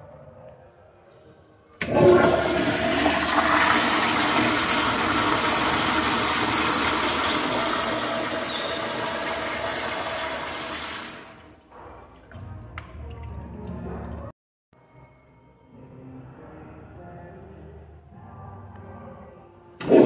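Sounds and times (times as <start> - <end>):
toilet flushing: 1.8 - 11.6.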